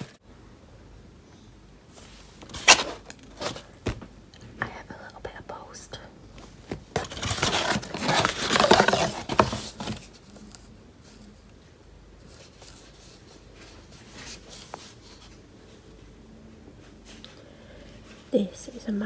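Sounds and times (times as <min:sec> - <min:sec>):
faint plastic rustling: 0:01.9 - 0:19.0
plastic bag tearing and crinkling: 0:07.0 - 0:09.8.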